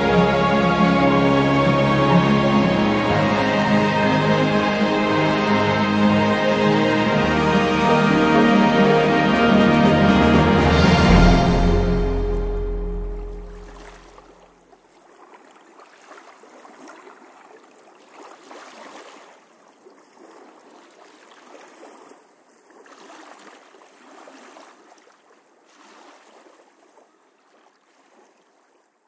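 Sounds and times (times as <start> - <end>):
small waves washing over water: 13.3 - 29.0.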